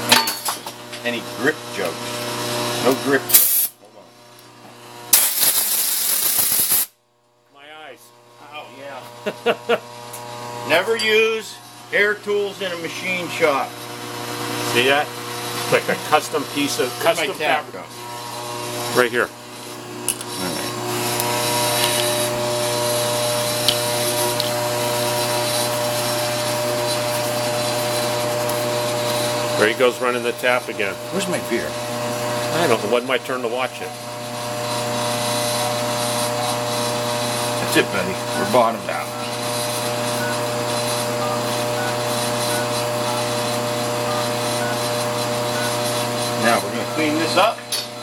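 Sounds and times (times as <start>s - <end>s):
electric motor humming: 0.8s - 6.9s, 7.6s - 48.0s.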